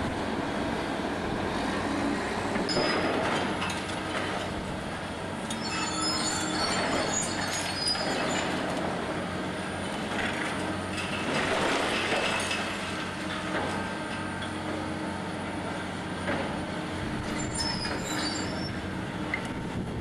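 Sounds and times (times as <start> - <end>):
excavator engine hum: 0.0 - 20.0
high-pitched metal squeals: 5.5 - 8.7, 17.2 - 18.9.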